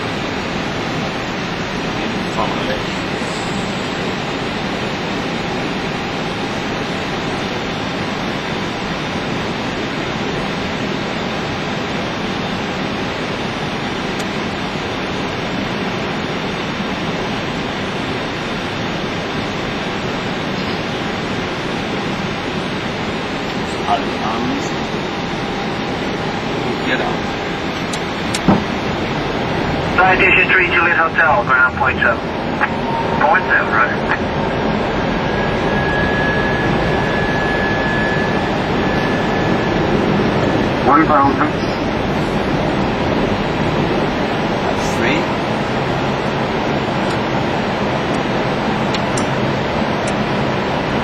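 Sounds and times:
aircraft engine noise: 0.0 - 51.0
airflow rushing in cockpit: 0.0 - 51.0
faint steady high tone: 32.6 - 40.6.

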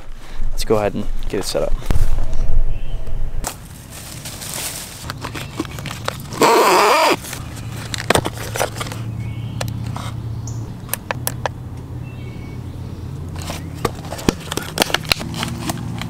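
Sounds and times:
plastic case clicks: 7.3 - 9.0.

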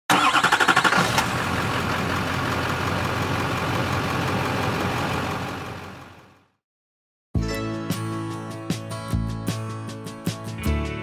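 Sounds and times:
vehicle engine idling: 0.1 - 6.5.

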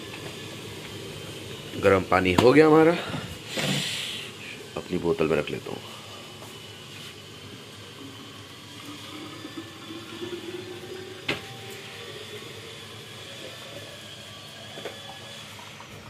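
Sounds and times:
hot water pouring into bottle: 4.6 - 16.0.

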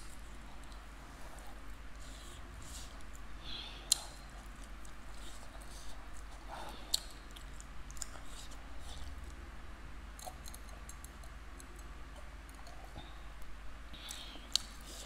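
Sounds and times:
low steady hum: 0.0 - 15.0
mouth clicks and wet smacks: 6.1 - 9.2, 14.0 - 15.0.

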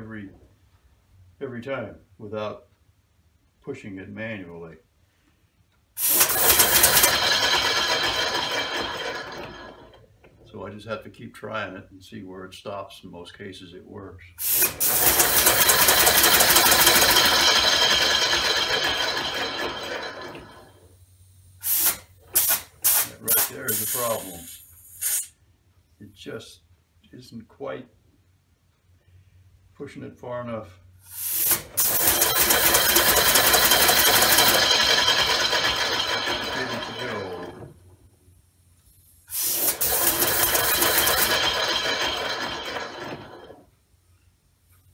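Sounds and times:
air motor clattering with hiss: 6.0 - 9.7, 14.4 - 20.7, 21.6 - 25.3, 31.0 - 37.7, 38.8 - 43.6
air engine clattering: 14.9 - 20.7
hissing air: 21.6 - 25.3, 31.0 - 32.0, 39.0 - 40.4.

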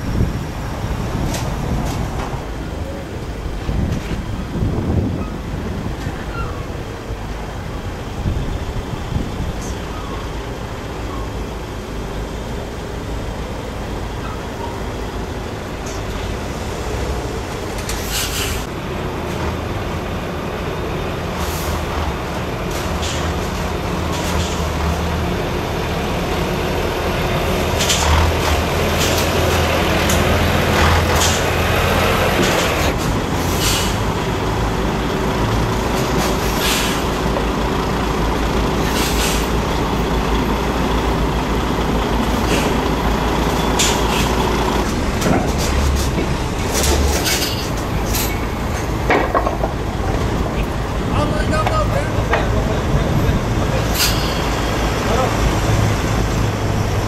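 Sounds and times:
truck diesel engines: 0.0 - 57.0
truck air brake hisses: 18.0 - 18.7, 21.4 - 21.9, 33.4 - 34.1, 36.2 - 37.2, 38.8 - 39.6.

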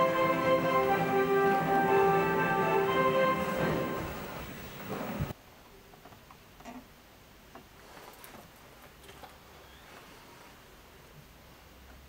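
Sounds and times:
orchestral music: 0.0 - 5.2.

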